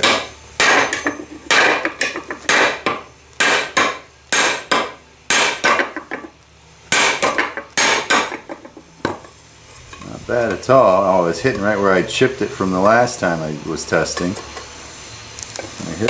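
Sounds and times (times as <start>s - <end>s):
hammer striking metal: 0.0s - 6.3s, 6.9s - 9.3s.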